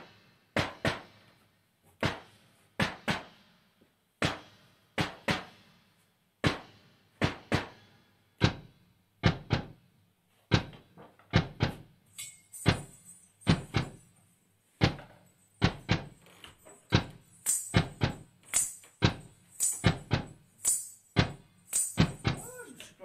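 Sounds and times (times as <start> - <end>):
high jingling rattle: 12.0 - 22.7
frame drum hits: 12.6 - 14.0, 16.9 - 22.6.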